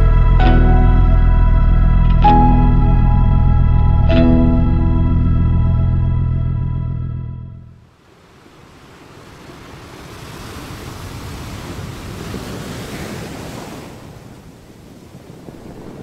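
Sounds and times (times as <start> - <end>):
ocean surf waves: 7.8 - 16.0.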